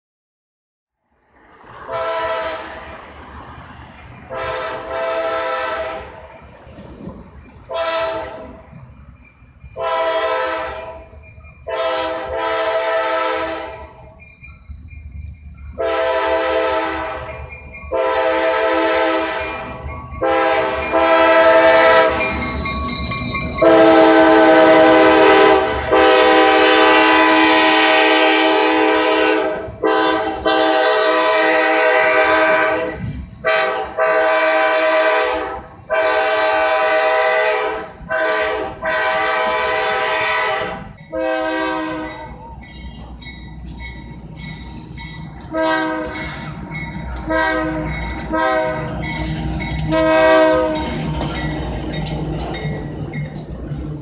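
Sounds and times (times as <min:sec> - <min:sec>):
train rumbling past: 0:01.1 - 0:54.0
locomotive air horn blasts: 0:01.8 - 0:02.8, 0:04.3 - 0:06.2, 0:07.7 - 0:08.6, 0:09.8 - 0:14.0, 0:15.8 - 0:22.3, 0:23.6 - 0:42.3, 0:45.4 - 0:46.4, 0:47.2 - 0:49.2, 0:49.8 - 0:51.2.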